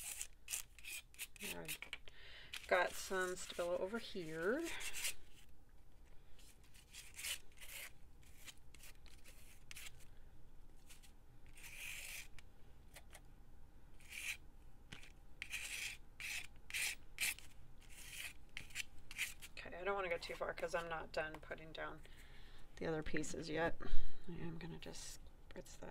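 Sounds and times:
pencil scratching on paper: 15.4 - 19.5.

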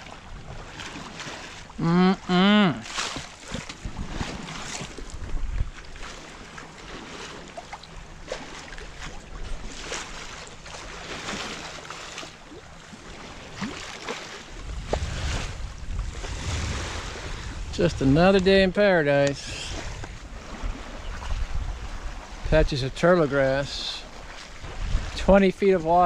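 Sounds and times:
water splashing along boat hull: 0.0 - 26.0
wind buffeting microphone: 3.8 - 6.0, 14.5 - 22.8, 24.5 - 26.0.

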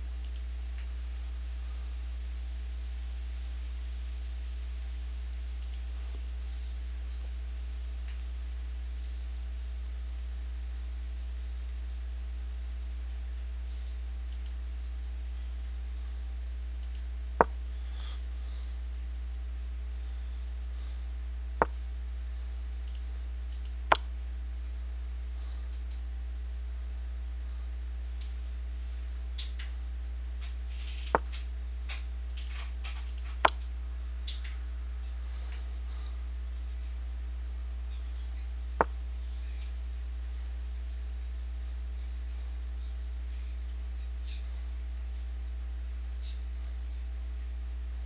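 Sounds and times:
low electrical hum: 0.0 - 48.0
faint mouse clicks: 0.2 - 0.9, 5.6 - 6.0, 14.3 - 14.6, 16.8 - 17.6, 22.8 - 24.1, 25.7 - 26.1, 30.4 - 34.6.

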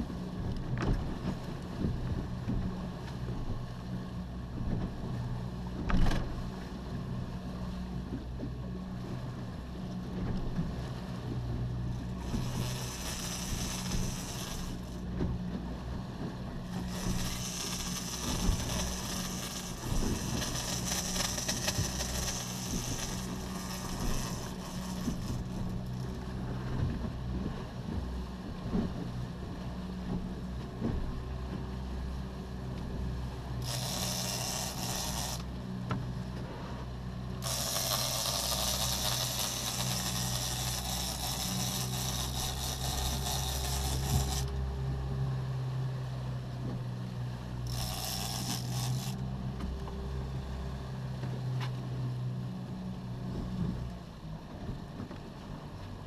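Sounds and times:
outboard engine running: 0.0 - 56.0
fishing reel whirring: 12.2 - 15.1, 16.7 - 26.2, 33.6 - 35.6, 37.4 - 44.6, 47.6 - 49.3.

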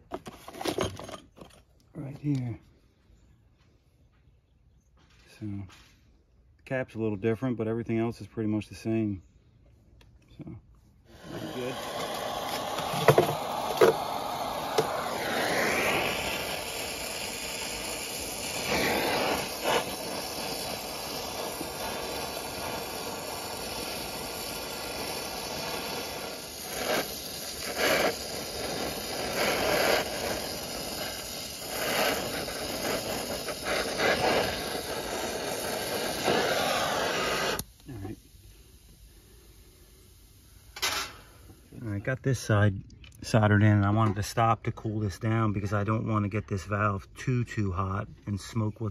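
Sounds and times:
brazing torch flame hissing: 10.9 - 42.1.

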